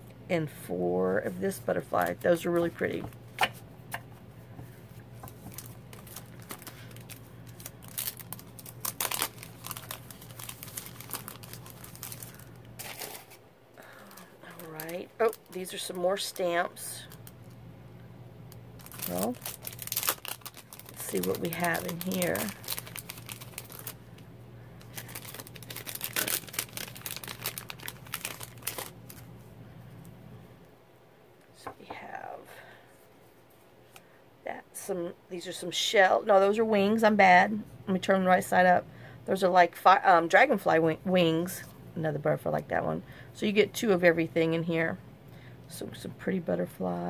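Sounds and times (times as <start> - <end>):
cellophane crinkling and rustling: 1.5 - 3.2, 4.6 - 17.6, 18.8 - 29.4.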